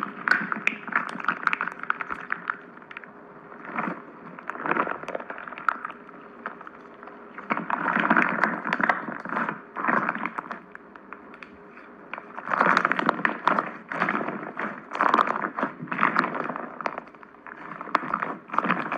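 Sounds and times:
slime crackling and popping: 0.0s - 18.9s.

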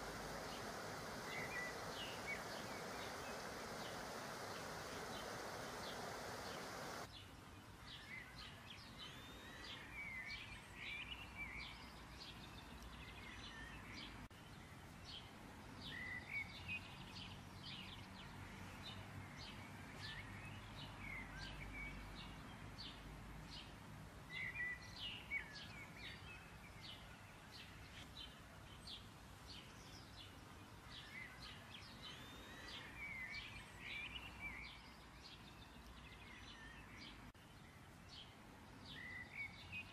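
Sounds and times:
faint low hum: 0.0s - 7.2s
small birds chirping: 0.0s - 39.9s.

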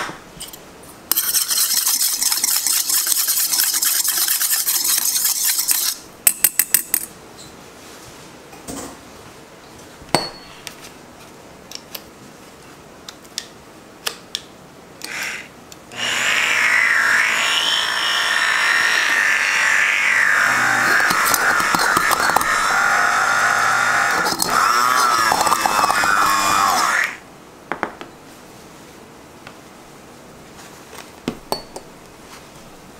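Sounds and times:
immersion blender whine: 15.0s - 27.2s.

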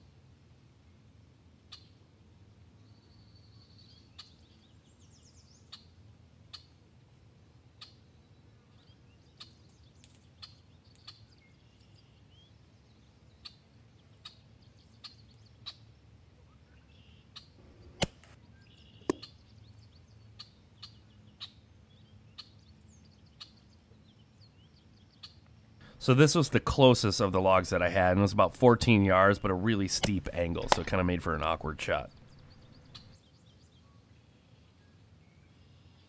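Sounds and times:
faint outdoor hum: 0.0s - 36.0s
small birds chirping: 2.8s - 6.8s, 7.8s - 36.0s
air rifle shots: 18.0s - 18.4s.

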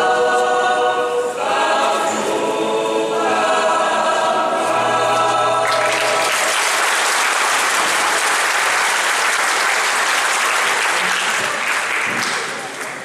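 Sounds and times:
choir holding chord: 0.0s - 7.9s
audience applause: 5.6s - 13.0s.

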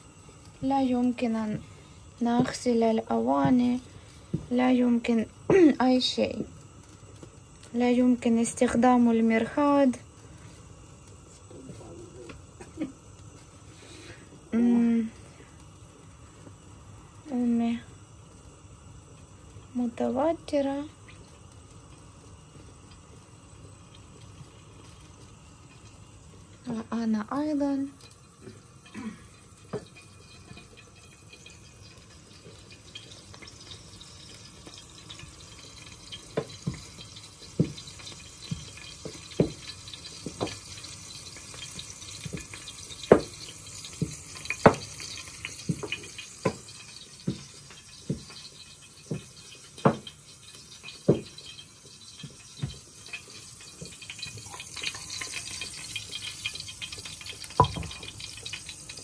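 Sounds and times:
knocks and taps on kitchen counter: 39.4s - 39.6s, 49.1s - 50.1s, 51.1s - 51.3s, 57.6s - 58.0s.

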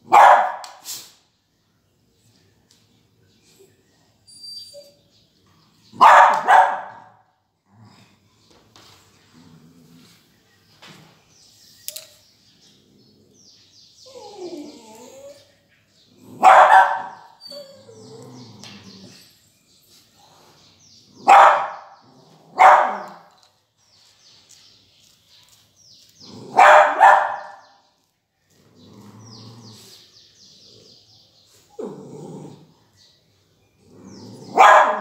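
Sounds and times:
dog barking: 0.0s - 0.8s, 6.0s - 7.2s, 16.3s - 17.4s, 21.2s - 23.3s, 26.5s - 27.7s, 34.5s - 35.0s
faint high chirping: 1.6s - 6.9s, 10.5s - 35.0s.

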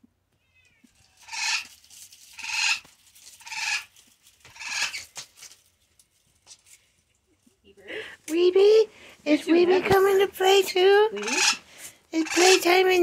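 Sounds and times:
bird squawking loudly: 1.2s - 1.7s, 2.4s - 2.8s, 4.5s - 5.1s, 11.2s - 11.6s, 12.2s - 12.8s.

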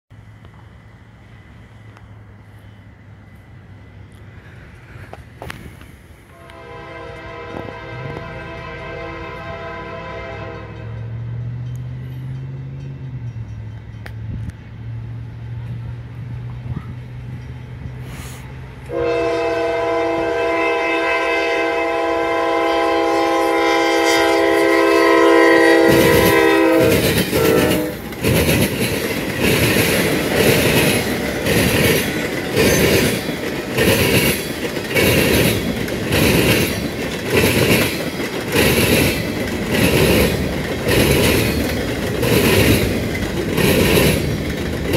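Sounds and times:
low rumble of approaching train: 0.1s - 44.9s
locomotive air horn chord: 6.3s - 11.1s, 18.1s - 28.1s
freight cars clattering over rail joints: 25.9s - 44.9s.

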